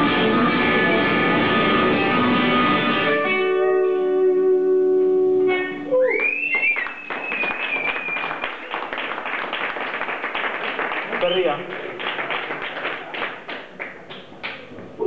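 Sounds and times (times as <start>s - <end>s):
electric guitar chords: 0.0s - 6.1s.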